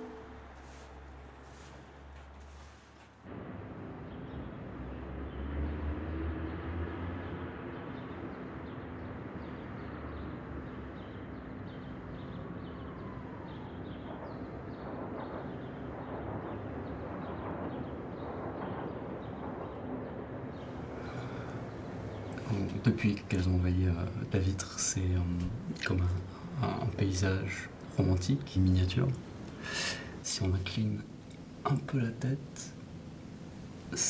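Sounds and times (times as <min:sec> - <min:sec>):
distant traffic rumble: 0:00.0 - 0:34.0
faint steady hum: 0:20.6 - 0:34.0.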